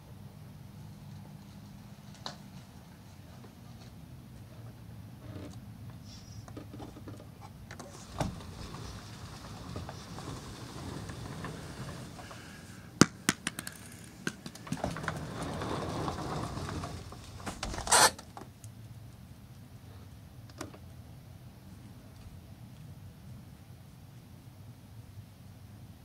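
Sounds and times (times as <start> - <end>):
rustling: 7.8 - 13.0, 13.6 - 18.3.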